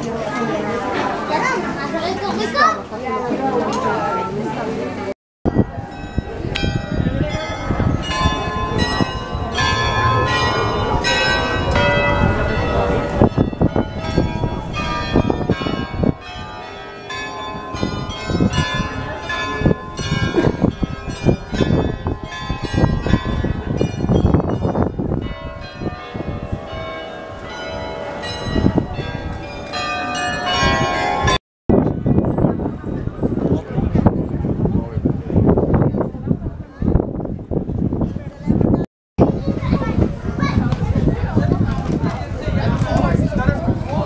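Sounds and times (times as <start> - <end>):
crowd noise: 0.0 - 44.0
carillon bells playing a tune: 5.5 - 31.4.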